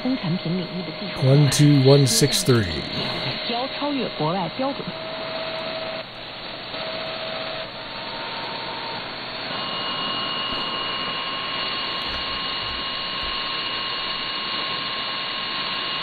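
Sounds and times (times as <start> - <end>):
radio static hiss: 0.0 - 8.4.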